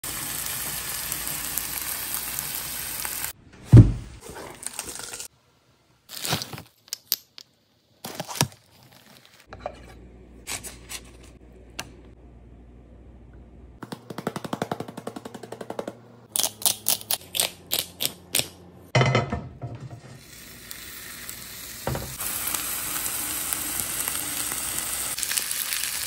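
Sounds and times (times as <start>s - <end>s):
steak sizzling in a pan: 0.1s - 3.3s, 20.2s - 26.0s
heavy thump: 3.7s - 4.2s
plastic packaging crinkling: 6.1s - 7.0s, 8.0s - 9.5s.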